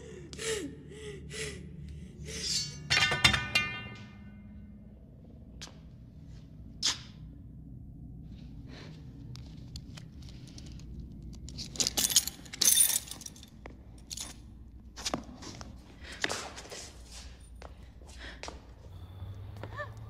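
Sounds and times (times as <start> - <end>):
low steady hum: 0.0 - 20.0.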